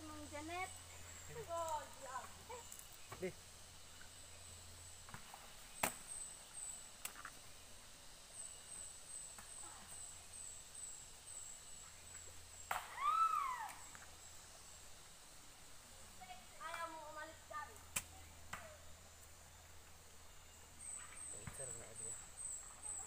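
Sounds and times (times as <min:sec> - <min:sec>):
animal call rising and falling: 0:12.8 - 0:13.9.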